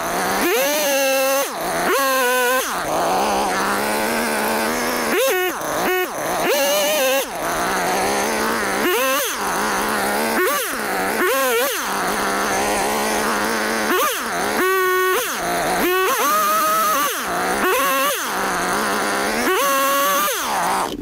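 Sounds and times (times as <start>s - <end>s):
chainsaw revving: 0.0s - 21.0s.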